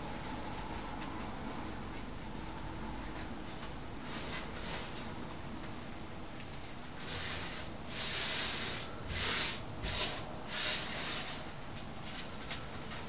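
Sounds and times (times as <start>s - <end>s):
hands sweeping powder on countertop: 7.0s - 11.6s.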